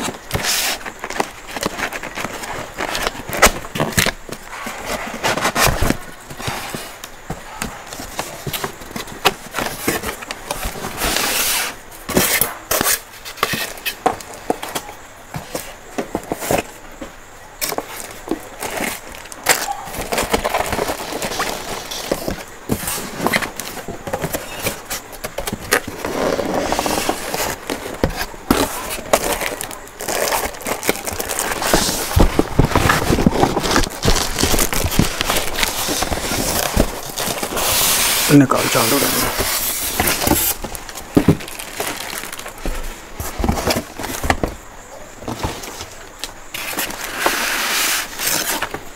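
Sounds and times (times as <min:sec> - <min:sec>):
cardboard and polystyrene scraping: 0:00.0 - 0:14.8, 0:17.6 - 0:44.6, 0:45.2 - 0:48.9.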